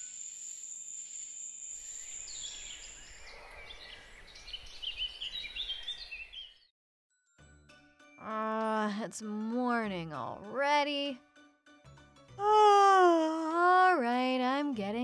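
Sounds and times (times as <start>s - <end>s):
night insects whining: 0.0s - 4.4s
birds chirping and twittering: 1.7s - 6.7s.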